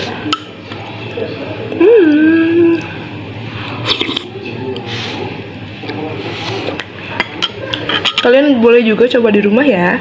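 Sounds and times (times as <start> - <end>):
woman humming mmm: 1.8 - 2.9.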